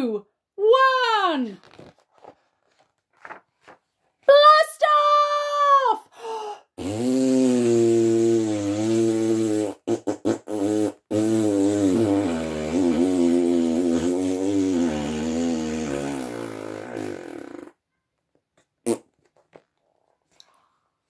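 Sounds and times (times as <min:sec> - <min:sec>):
person blowing a raspberry: 0:06.8 - 0:17.8, 0:18.8 - 0:19.1.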